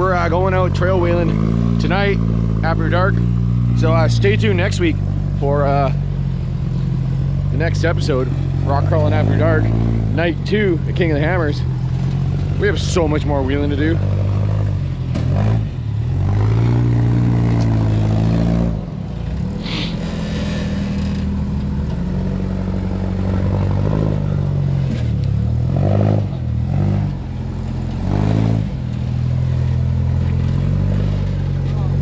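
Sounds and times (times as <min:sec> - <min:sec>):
engine idling and revving: 0:00.0 - 0:32.0
brief hiss: 0:19.6 - 0:20.4.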